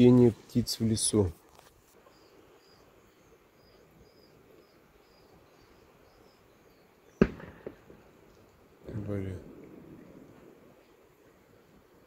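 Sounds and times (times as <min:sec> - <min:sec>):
gunshot with echo: 0:07.2 - 0:07.9.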